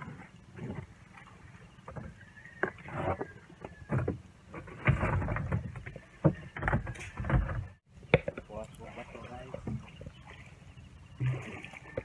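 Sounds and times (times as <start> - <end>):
water sloshing around boat: 0.0 - 12.0
knocks and thumps: 3.7 - 8.5.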